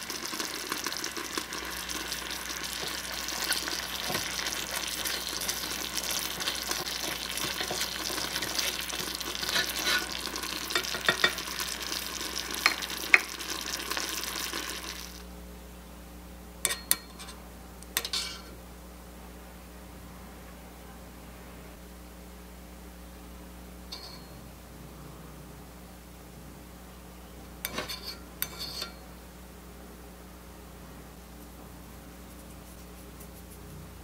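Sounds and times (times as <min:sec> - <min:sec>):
food sizzling in a saucepan: 0:00.0 - 0:15.3
metal spoon clinking in saucepan: 0:09.4 - 0:11.5, 0:16.6 - 0:17.4, 0:18.0 - 0:18.5, 0:23.9 - 0:24.4, 0:27.7 - 0:29.0.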